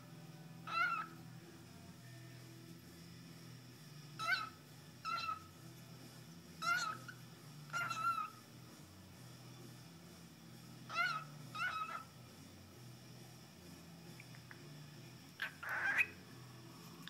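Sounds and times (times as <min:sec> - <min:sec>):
cockatiel talking: 0:00.6 - 0:01.2, 0:04.2 - 0:05.5, 0:06.6 - 0:08.4, 0:10.9 - 0:12.2, 0:15.4 - 0:16.2.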